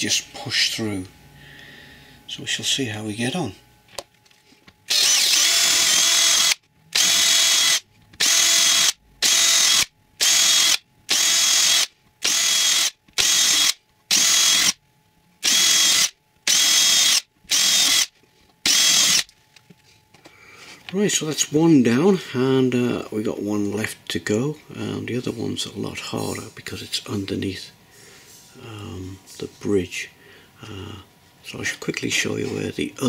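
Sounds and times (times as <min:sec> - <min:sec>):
cordless drill drilling plywood: 0:04.9 - 0:14.8, 0:15.4 - 0:19.3.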